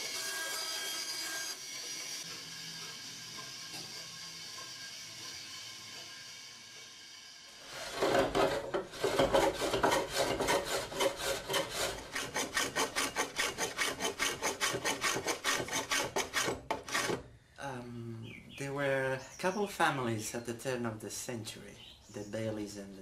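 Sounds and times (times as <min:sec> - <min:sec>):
hand plane shaving wood: 0:07.6 - 0:17.2.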